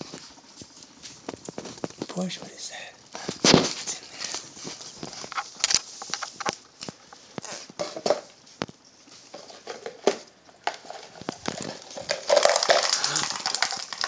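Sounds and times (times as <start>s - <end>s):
crab legs scrabbling on plastic: 9.3s - 14.0s.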